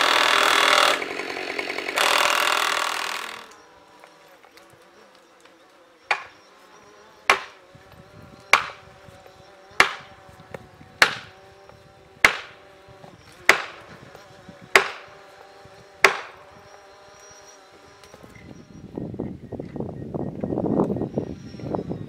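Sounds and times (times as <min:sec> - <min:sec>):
axe striking wedge: 0:06.1 - 0:06.4, 0:07.3 - 0:07.6, 0:08.5 - 0:08.8, 0:09.8 - 0:10.1, 0:11.0 - 0:11.3, 0:12.2 - 0:12.6, 0:13.5 - 0:13.8, 0:14.7 - 0:15.1, 0:16.0 - 0:16.4.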